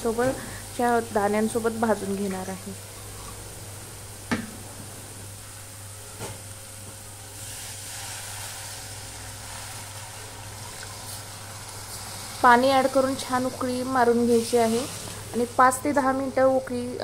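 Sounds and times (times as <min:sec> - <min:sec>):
sizzling: 0:00.0 - 0:17.0
water pouring into hot pan: 0:07.4 - 0:12.6.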